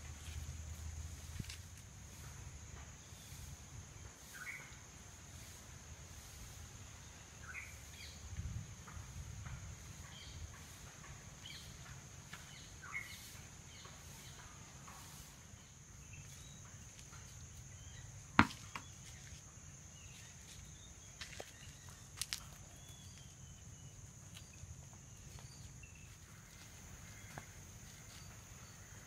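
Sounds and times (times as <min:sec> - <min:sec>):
birds chirping: 0:10.0 - 0:14.6.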